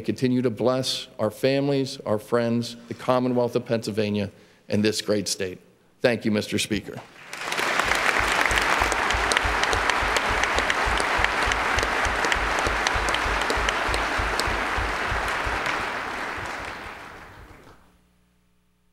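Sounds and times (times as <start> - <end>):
crowd applauding: 7.2 - 17.9.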